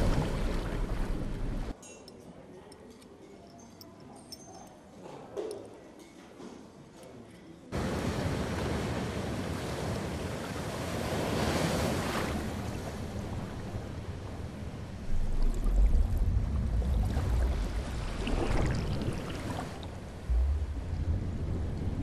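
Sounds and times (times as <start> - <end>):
deep rumble of heavy water: 0.0 - 1.7, 7.8 - 22.0
waves breaking: 0.0 - 1.7, 7.8 - 22.0.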